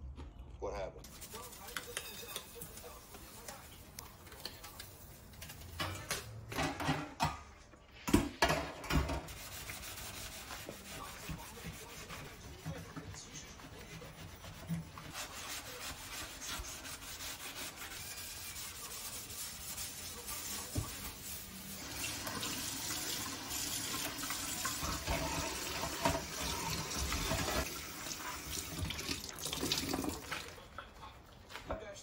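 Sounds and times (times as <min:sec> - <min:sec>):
sponge scrubbing steel sink: 0:01.0 - 0:05.6, 0:08.9 - 0:28.9
tap water splashing into sink: 0:21.9 - 0:30.6.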